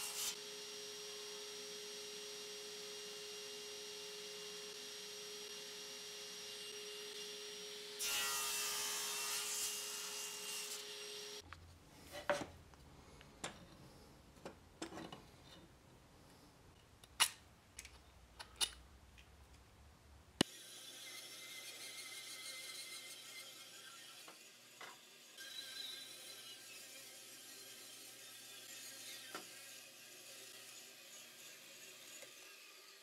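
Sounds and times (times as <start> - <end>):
table saw cutting wood: 0.0 - 11.4, 20.4 - 33.0.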